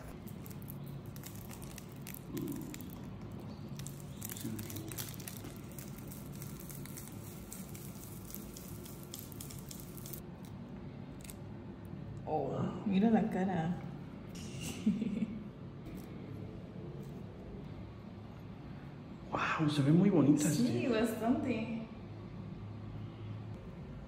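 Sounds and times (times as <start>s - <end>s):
dry crinkling of snake skin: 0.0s - 10.2s
low room hum: 0.0s - 24.0s.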